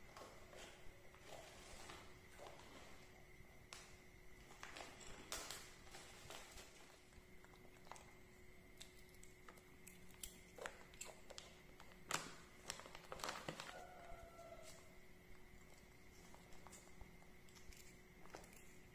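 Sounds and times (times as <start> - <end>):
paper snack packet crinkling: 10.1 - 14.8.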